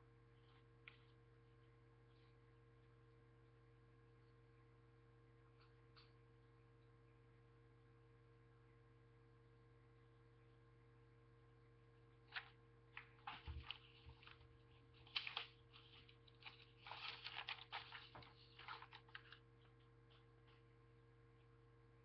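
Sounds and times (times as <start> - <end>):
steady low hum: 0.0 - 22.0
paper rustling: 12.3 - 20.6.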